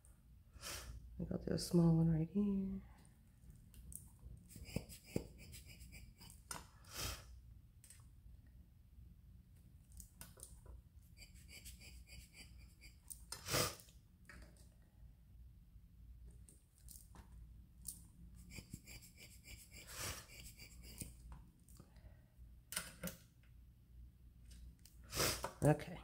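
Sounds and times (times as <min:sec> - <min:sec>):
short puffs of air: 0:25.1 - 0:25.4.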